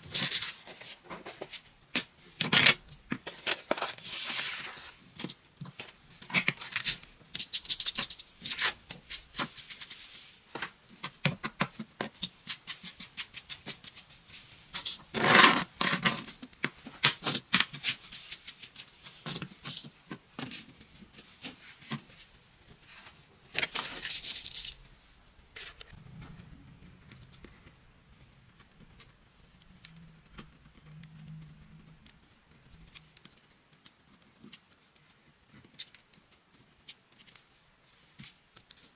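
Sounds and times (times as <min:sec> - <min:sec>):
sand brushed across paper: 0:08.5 - 0:10.5.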